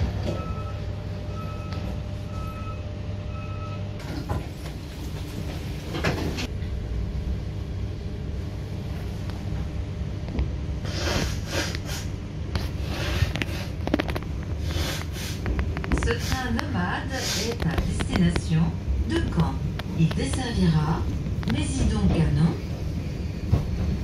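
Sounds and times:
train running gear rumble: 4.0 - 10.8, 13.1 - 24.0.

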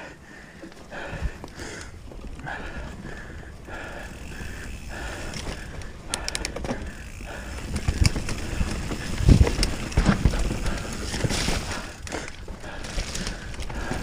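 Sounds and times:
bike chain and frame rattle: 0.3 - 14.0
hub ratchet clicking: 3.8 - 11.2.

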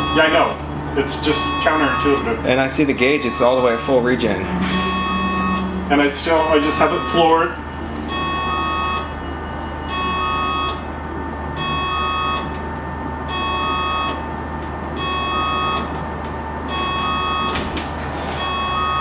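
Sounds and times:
steady low hum: 0.0 - 19.0
electronic alert chime: 3.2 - 7.4.

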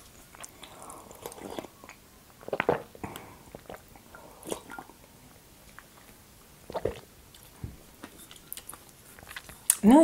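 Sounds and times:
sipping and gulping tea: 0.4 - 5.0, 6.7 - 7.1.

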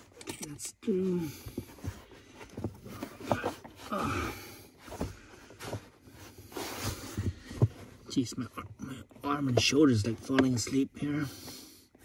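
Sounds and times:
strained grunts: 3.0 - 4.8.

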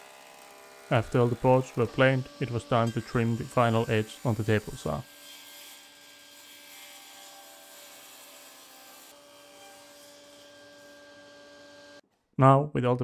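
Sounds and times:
table saw ripping board: 3.2 - 12.0.

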